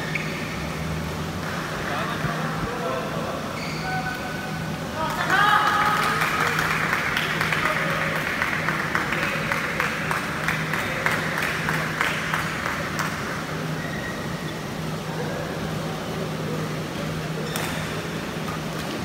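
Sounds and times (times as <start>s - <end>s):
spectators clapping: 5.0s - 13.5s.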